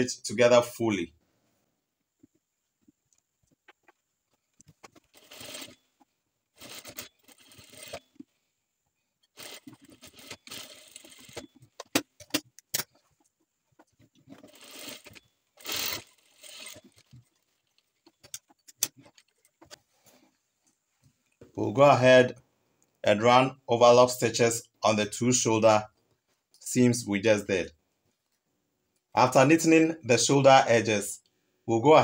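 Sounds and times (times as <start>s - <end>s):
sewing machine stitching: 4.9s - 5.8s, 6.6s - 8.2s, 9.3s - 12.0s, 14.2s - 19.8s.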